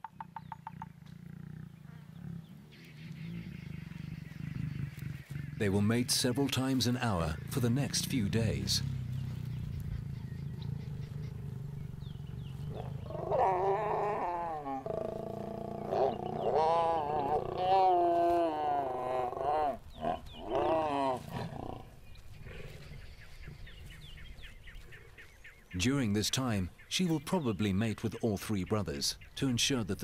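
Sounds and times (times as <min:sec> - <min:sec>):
lion low rumble: 0:00.5 - 0:25.7
lioness wavering snarls: 0:08.8 - 0:22.9.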